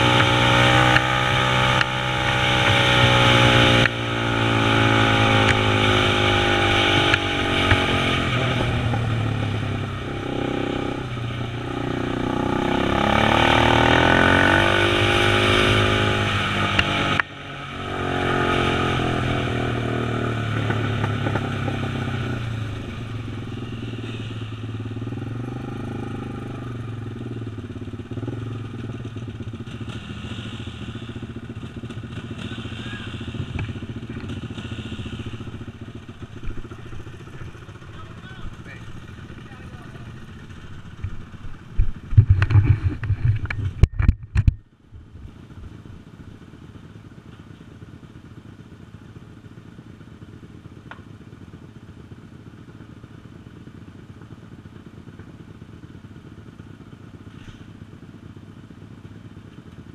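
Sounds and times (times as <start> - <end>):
quad engine revving: 0.0 - 43.8.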